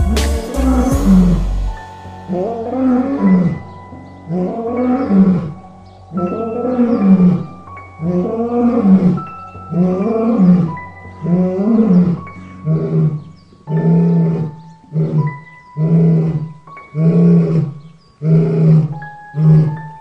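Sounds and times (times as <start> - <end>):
background music held melody: 0.0 - 20.0
lion growling roars: 6.3 - 19.9.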